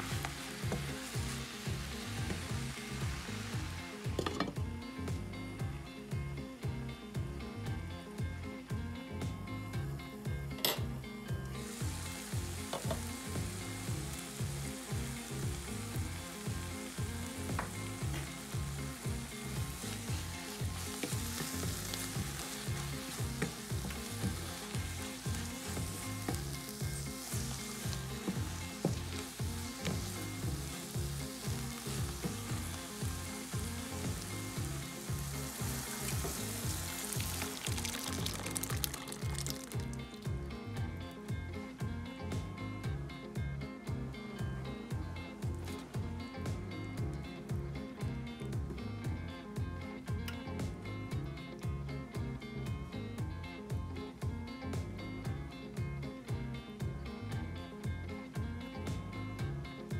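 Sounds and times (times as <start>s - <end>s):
spinach sizzling in frying pan: 0.0s - 4.4s, 11.5s - 40.3s
background music with beat: 0.0s - 59.9s
wooden spatula stirring: 19.5s - 39.8s.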